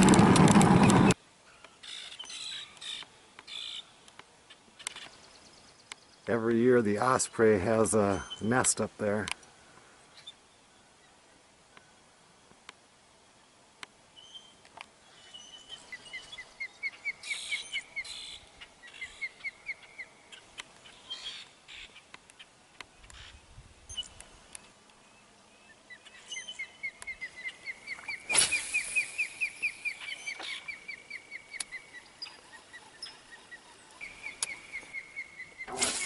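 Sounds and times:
bird high whistled chirps: 26.0 - 36.0.

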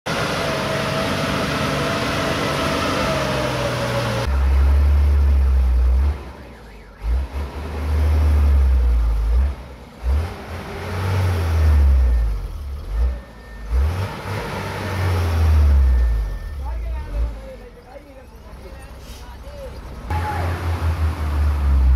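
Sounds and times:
truck diesel engine rumbling: 0.1 - 21.9.

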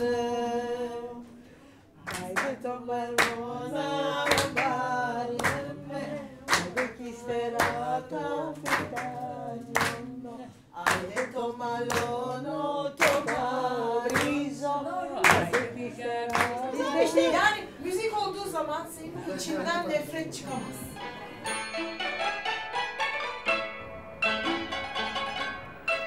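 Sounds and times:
people singing unaccompanied: 0.0 - 21.5
people clapping along: 2.0 - 17.3.

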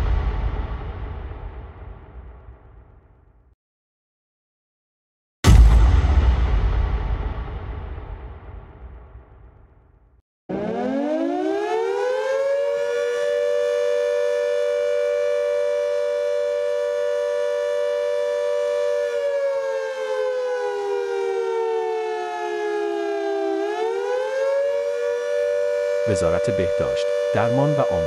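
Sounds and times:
civil defense siren wailing: 10.5 - 28.0.

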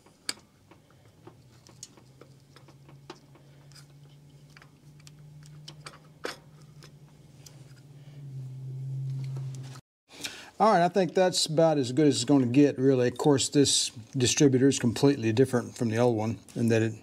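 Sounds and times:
light clicks and taps of metal parts: 0.0 - 7.8
low steady hum: 0.0 - 17.0.

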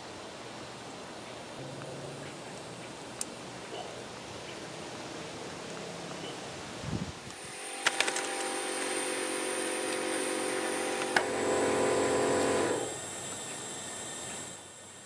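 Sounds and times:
small motor humming: 7.3 - 15.0.

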